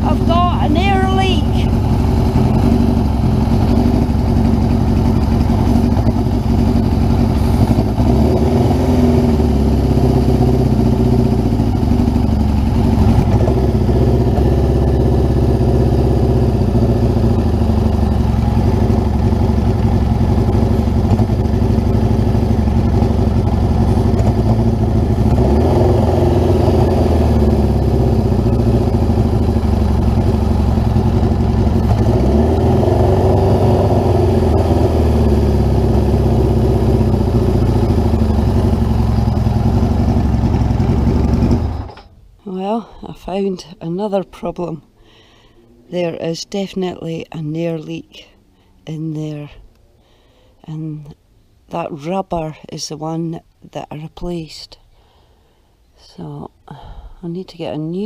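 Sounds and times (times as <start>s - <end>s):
motorcycle engine idling: 0.0s - 42.2s.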